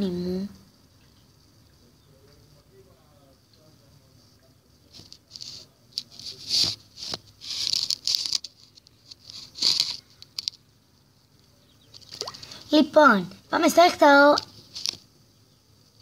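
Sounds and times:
scratchy rustling on microphone: 4.9 - 10.6.

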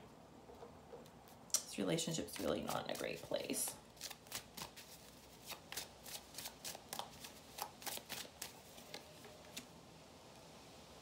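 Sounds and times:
cards being shuffled: 2.3 - 9.7.

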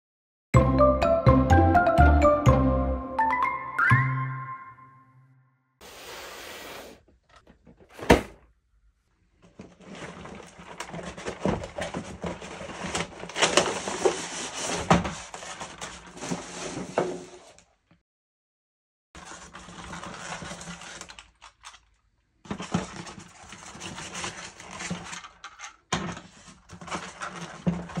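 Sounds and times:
cardboard rustling and scraping: 5.8 - 7.0, 7.7 - 8.4, 9.4 - 17.6, 19.2 - 21.3, 22.4 - 28.0.

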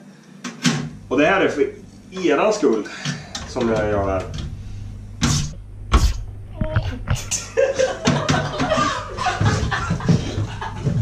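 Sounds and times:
people laughing: 7.3 - 11.0.

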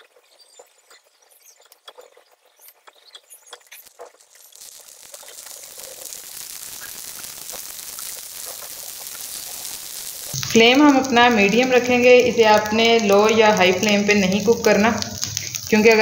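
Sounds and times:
small crackles and clicks in oil: 0.0 - 16.0
food sizzling in oil: 3.3 - 16.0.

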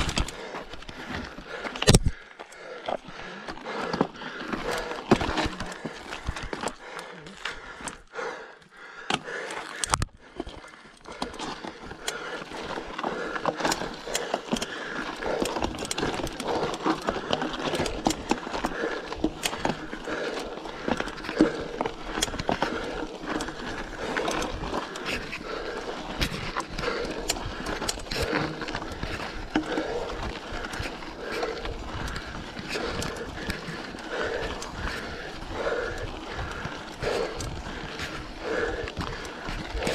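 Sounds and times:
bicycle knocks and clicks: 0.0 - 2.2
bicycle rattling on dirt trail: 0.0 - 39.9.

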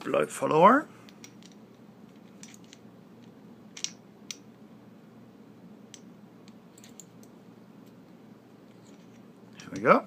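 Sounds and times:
lock parts clicking: 1.1 - 4.4.

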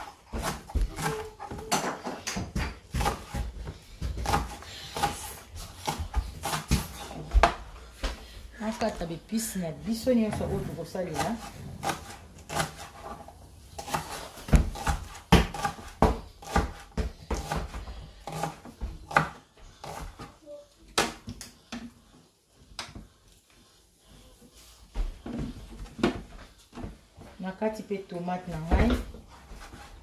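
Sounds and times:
knife chopping on cutting board: 0.3 - 7.6, 11.1 - 20.3.

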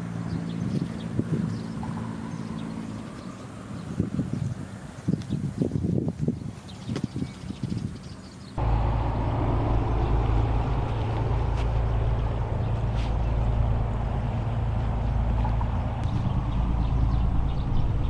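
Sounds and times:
motorboat engine droning: 8.6 - 18.0.

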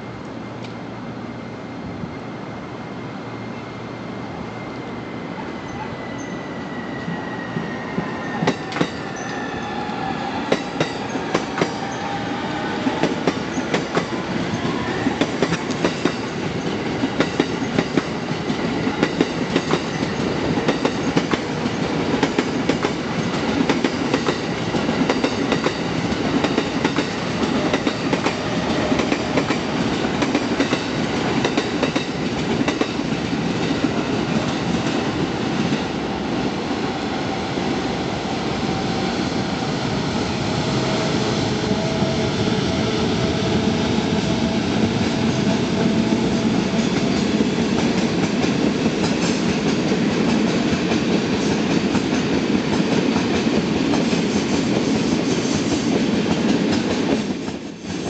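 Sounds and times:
train wheels clicking over rail joints: 15.2 - 35.0.

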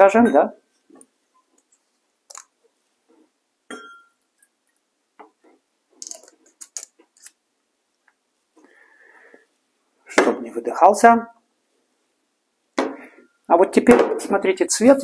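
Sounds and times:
glasses and bottles clinking: 3.7 - 4.2.

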